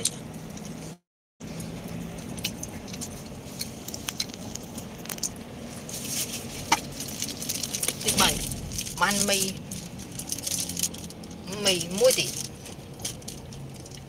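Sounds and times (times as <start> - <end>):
car engine and road hum: 0.0 - 14.0.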